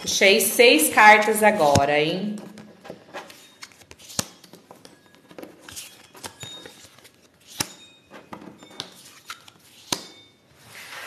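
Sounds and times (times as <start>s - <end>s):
playing cards slapping and rustling: 2.5s - 11.0s.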